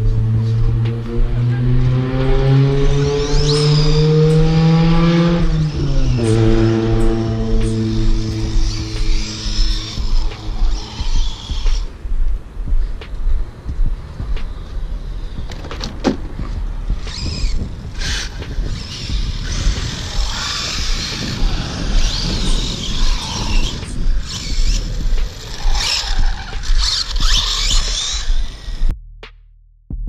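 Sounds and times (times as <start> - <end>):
electric motor whining: 0.0 - 11.9, 17.0 - 28.9.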